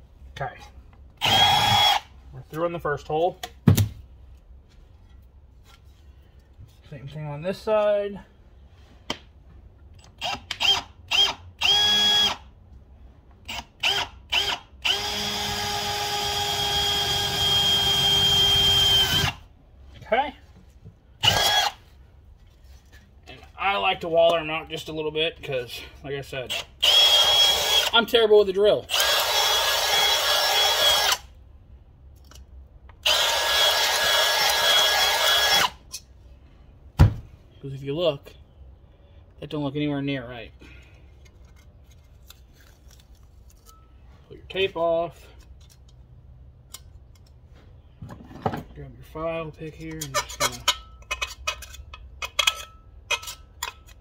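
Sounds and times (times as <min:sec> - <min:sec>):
power drill boring metal: 0:01.2 - 0:02.1, 0:10.2 - 0:12.4, 0:13.5 - 0:19.4, 0:21.2 - 0:21.8, 0:26.5 - 0:27.9, 0:28.9 - 0:31.2, 0:33.0 - 0:35.8.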